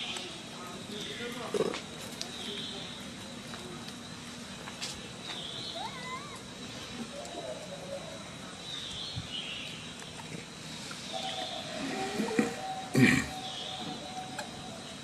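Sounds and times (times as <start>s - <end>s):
macaque squealing calls: 5.8s - 6.4s.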